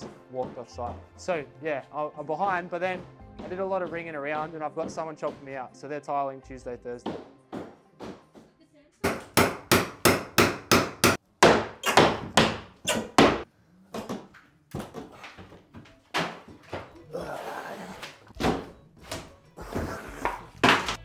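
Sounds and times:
hammer strikes on tiles: 7.0s - 14.3s.

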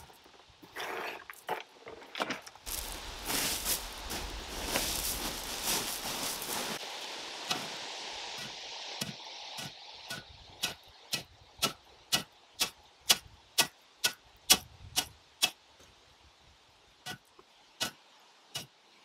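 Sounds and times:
footsteps on leaves and gravel: 2.6s - 7.1s.

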